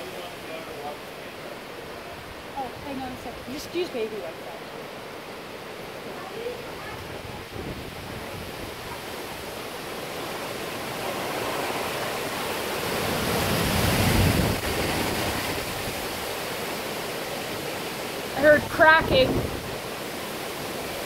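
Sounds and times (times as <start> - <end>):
wind gusting through trees: 0.0 - 21.0
wind buffeting microphone: 6.6 - 10.3, 12.9 - 16.4, 18.4 - 20.1.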